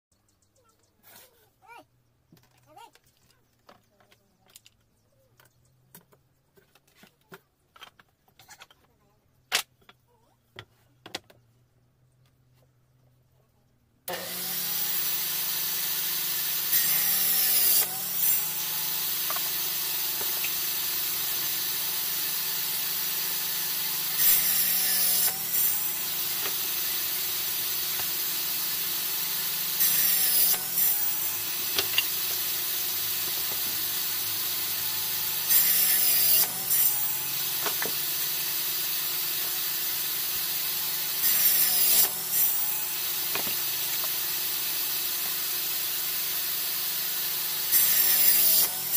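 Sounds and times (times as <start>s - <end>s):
saw cutting wood rasp: 14.1s - 48.9s
table saw running: 14.1s - 48.9s.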